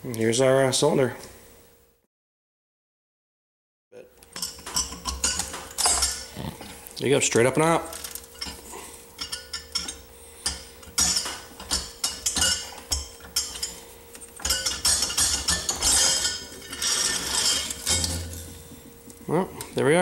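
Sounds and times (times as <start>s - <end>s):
metal clinking and scraping: 4.4s - 6.3s, 9.2s - 18.7s.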